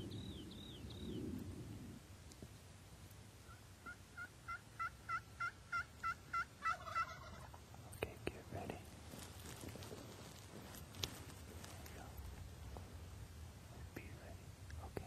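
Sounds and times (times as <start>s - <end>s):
turkey yelping: 3.5s - 7.6s.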